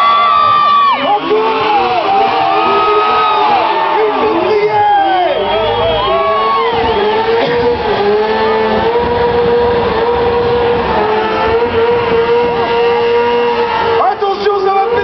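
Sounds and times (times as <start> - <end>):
motorcycle engine at high revs: 0.2 - 15.0.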